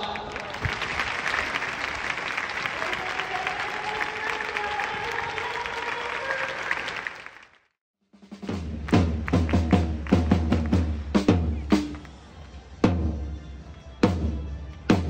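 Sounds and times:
large crowd applauding: 0.0 - 7.8, 8.8 - 12.3.

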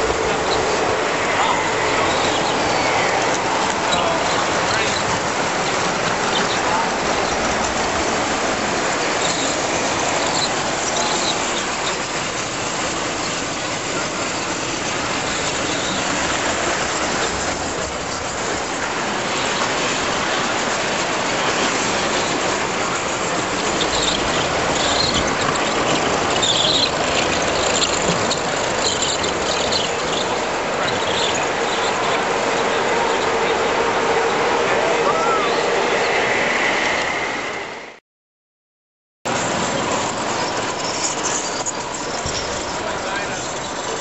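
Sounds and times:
toy train rolling rattle: 0.0 - 33.6, 39.3 - 44.0.

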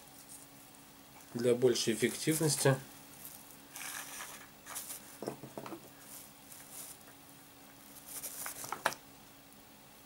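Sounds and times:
faint steady hum: 0.0 - 10.0
plastic bags rustling: 3.2 - 5.2.

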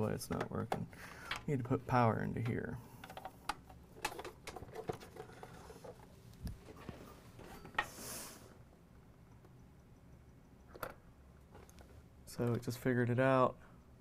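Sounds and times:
short hiss: 7.9 - 8.5.

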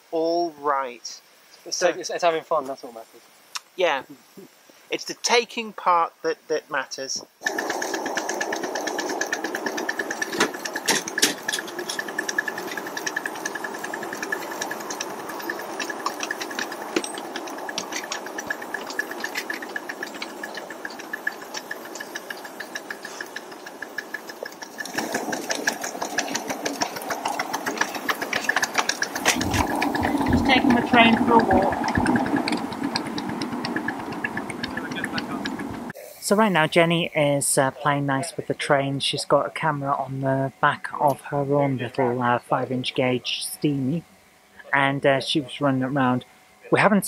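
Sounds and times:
steady whine: 0.0 - 47.0
fast repeated clicking: 7.4 - 36.0
wheels clattering on rails: 7.4 - 36.4.

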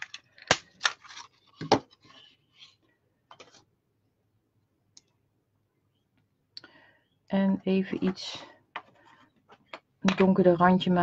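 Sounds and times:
paper rustling: 0.8 - 2.8.

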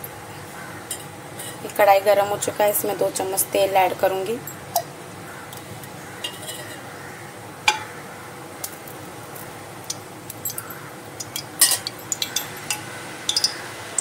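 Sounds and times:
steady low hiss: 0.0 - 14.0
metallic ticks of heating pan: 7.7 - 8.0, 9.4 - 14.0.

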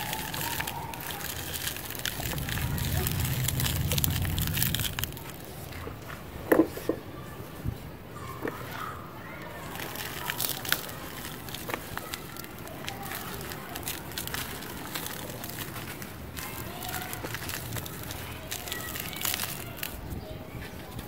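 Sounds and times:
cement chunks crunching by hand: 0.0 - 5.4, 9.6 - 20.2
grit pouring through fingers: 0.0 - 5.6, 9.7 - 20.1.

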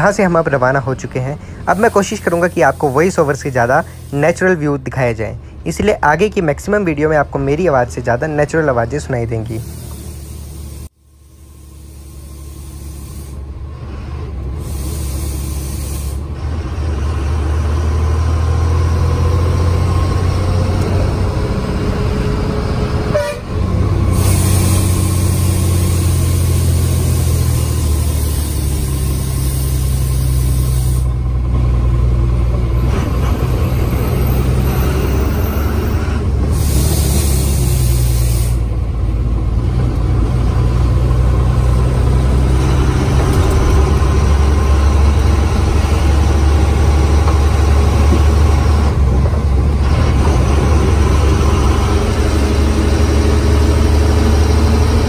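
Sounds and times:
bus engine running: 0.0 - 55.0
high hiss: 9.4 - 13.4, 24.2 - 31.1.

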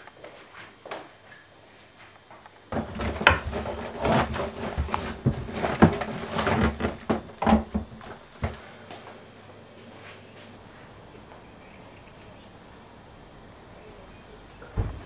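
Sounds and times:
objects being handled knocking: 2.8 - 8.6.

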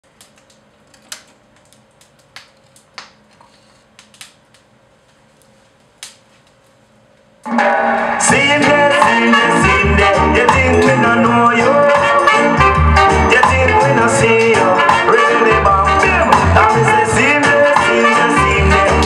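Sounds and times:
record player hum: 0.0 - 8.1
guitar music from record: 7.5 - 19.0.

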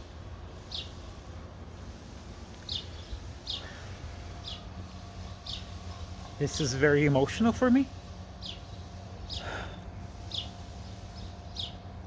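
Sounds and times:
small bird chirping: 0.6 - 1.1, 2.6 - 3.8, 4.4 - 6.3, 8.4 - 11.9.

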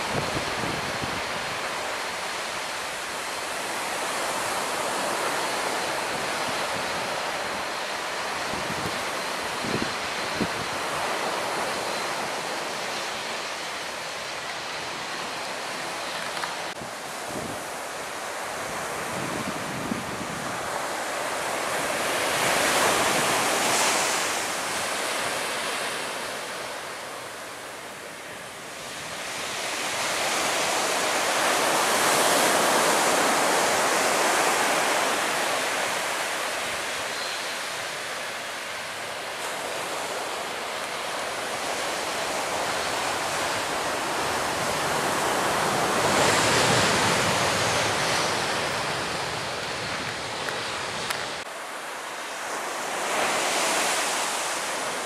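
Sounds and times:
wind noise on microphone: 0.0 - 2.0, 4.0 - 12.8, 14.9 - 26.0, 41.5 - 51.5.

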